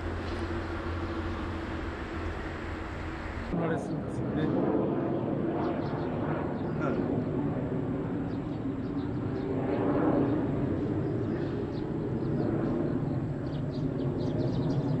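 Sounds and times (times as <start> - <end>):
distant motor rumble: 0.0 - 15.0.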